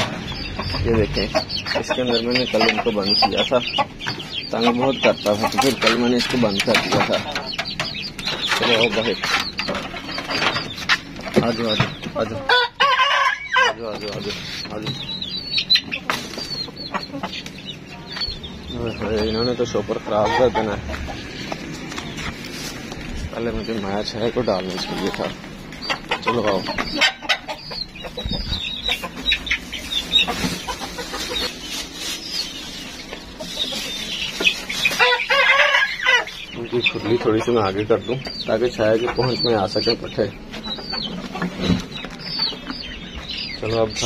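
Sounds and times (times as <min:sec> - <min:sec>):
chickens clucking: 0:00.0 - 0:44.0
long drawn-out chicken call: 0:12.5 - 0:13.8
rustling fodder: 0:20.9 - 0:24.1, 0:28.2 - 0:35.3.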